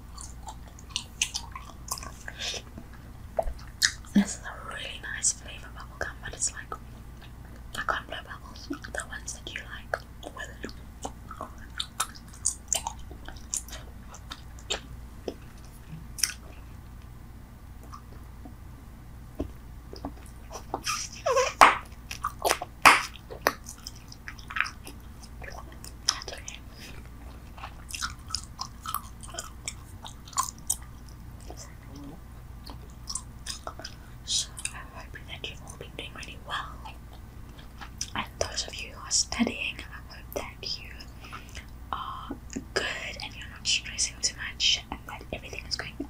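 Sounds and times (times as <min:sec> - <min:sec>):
gum chewing wet smacks: 0:00.1 - 0:04.2, 0:09.9 - 0:16.6, 0:17.8 - 0:18.6, 0:21.6 - 0:34.8, 0:36.8 - 0:38.3.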